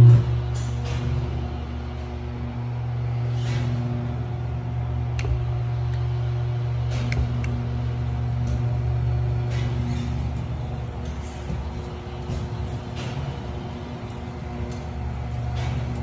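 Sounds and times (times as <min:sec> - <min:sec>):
machine hum: 0:00.0 - 0:16.0.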